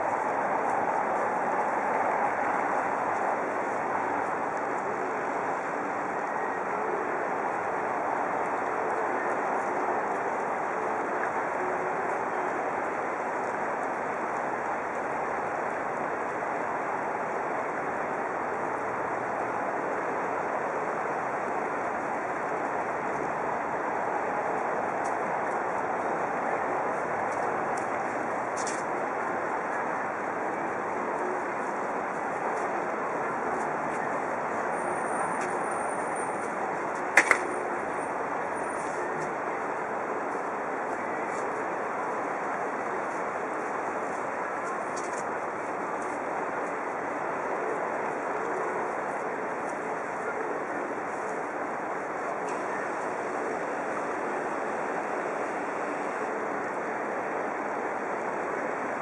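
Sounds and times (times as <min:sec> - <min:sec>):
rushing background noise: 0:00.0 - 0:59.0.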